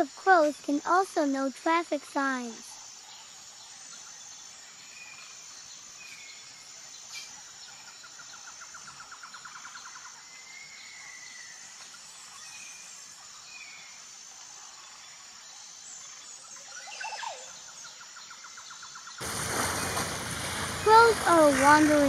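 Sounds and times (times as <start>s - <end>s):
insect trill: 0.0s - 22.0s
fast run of pulses: 19.2s - 22.0s.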